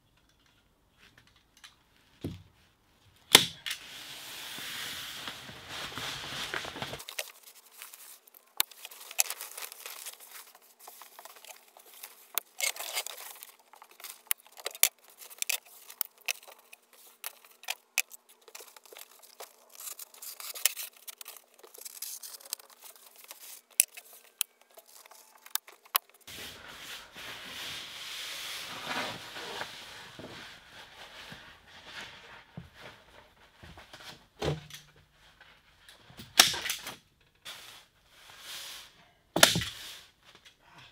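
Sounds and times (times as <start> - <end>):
plastic sheet crinkling: 3.8 - 26.3.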